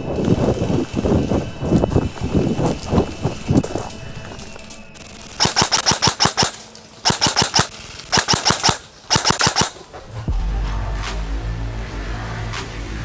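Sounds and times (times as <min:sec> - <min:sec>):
airsoft rifle firing bursts: 0:05.0 - 0:09.8.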